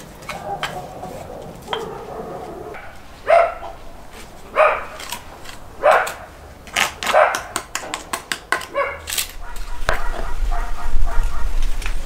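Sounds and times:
dog barking: 0.3 - 3.8, 4.5 - 5.0, 5.8 - 6.3, 7.1 - 7.6, 8.7 - 11.6.

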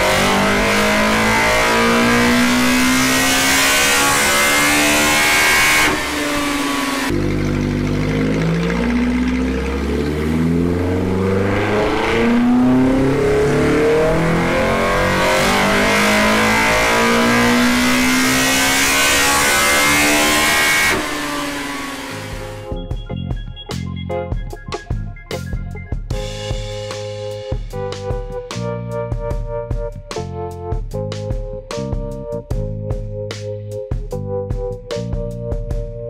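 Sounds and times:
car engine revving on dyno: 0.0 - 22.6.

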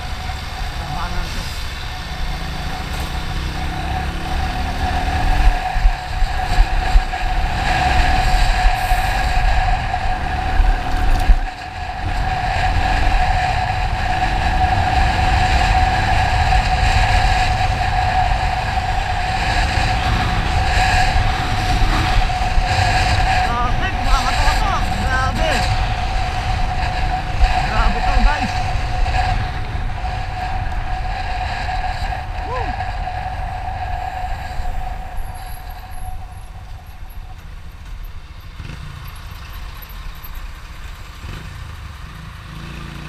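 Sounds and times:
wind buffeting microphone: 0.0 - 38.8
motorcycle mechanical whine: 0.0 - 43.0.

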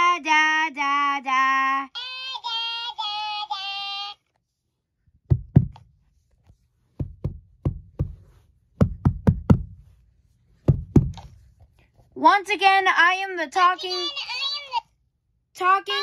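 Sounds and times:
toy parrot high sped-up voice: 0.0 - 4.2, 13.6 - 14.9
soft knocks: 5.3 - 5.8, 6.9 - 9.9, 10.6 - 11.4.

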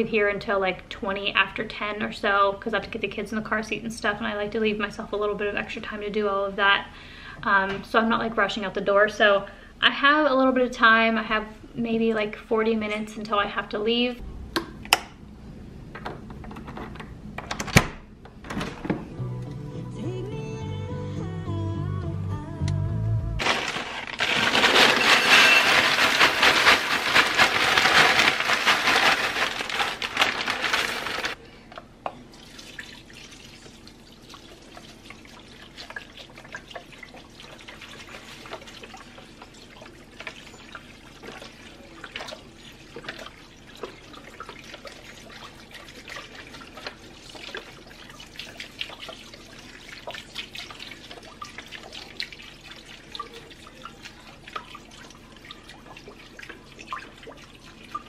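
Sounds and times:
broth pouring and splashing: 23.4 - 31.4, 32.3 - 58.0
frozen potatoes poured from bag: 23.4 - 31.4.

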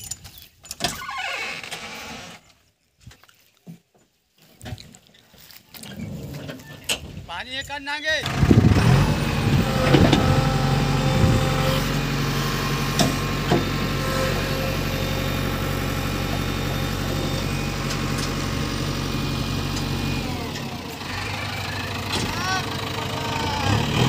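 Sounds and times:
diesel engine running: 8.2 - 24.0.

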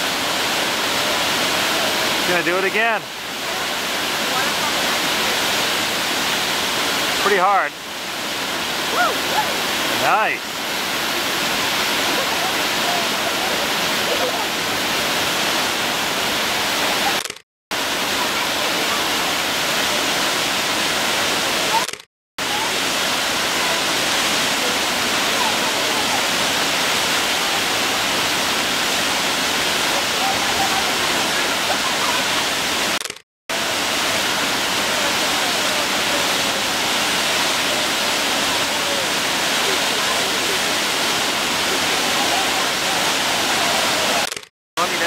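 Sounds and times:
waterfall rushing: 0.0 - 45.0.

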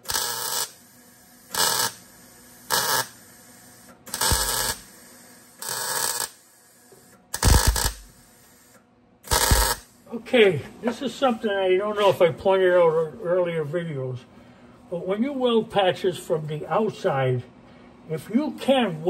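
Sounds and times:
welding arc crackle: 0.0 - 10.0.

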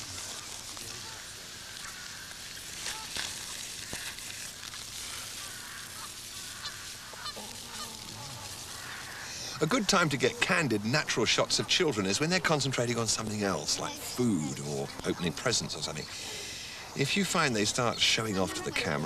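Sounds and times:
outdoor background noise: 0.0 - 19.0
chickens clucking: 5.3 - 12.6.

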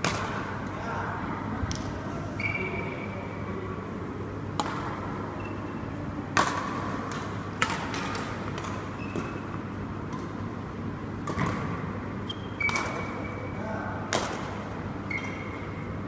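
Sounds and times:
rackets hitting shuttlecock: 0.0 - 0.5, 4.5 - 5.3, 6.3 - 10.4, 11.1 - 13.4, 14.0 - 15.8
steady low hum: 0.0 - 16.0.

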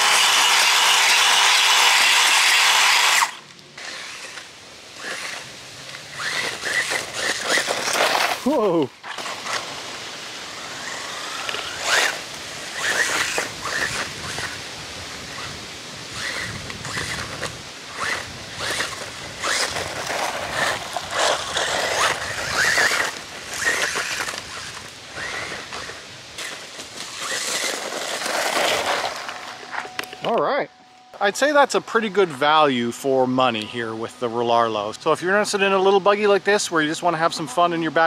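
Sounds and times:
rc car electric motor whining: 0.0 - 30.1
tyres scrabbling on loose dirt: 0.0 - 30.4.

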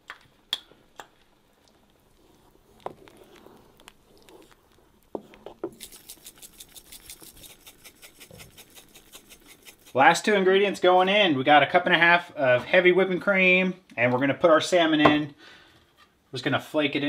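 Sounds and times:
spice shaker rattling: 5.5 - 10.2.

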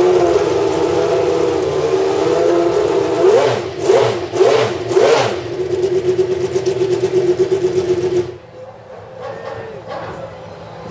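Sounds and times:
car engine revving: 0.0 - 8.4
car engine idling: 0.0 - 8.6.

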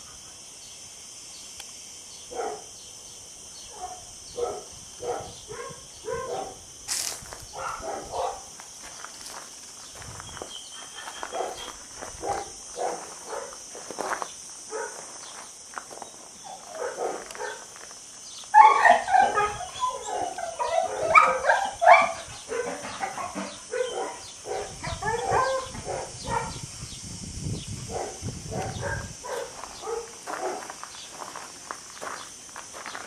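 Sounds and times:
dogs barking: 2.3 - 2.7, 3.7 - 6.6, 7.5 - 8.5, 11.2 - 13.6, 14.7 - 15.0, 16.5 - 17.7, 18.6 - 26.6, 27.9 - 30.8.

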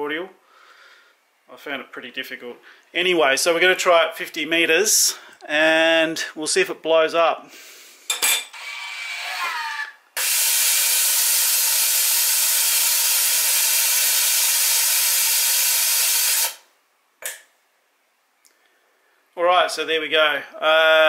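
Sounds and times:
machine whirring: 8.5 - 16.7
air hissing: 10.4 - 16.7.

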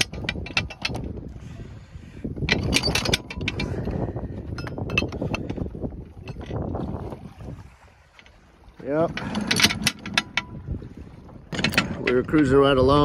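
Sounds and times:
anchor chain clanking: 0.0 - 1.4, 2.3 - 6.9, 8.0 - 13.0.

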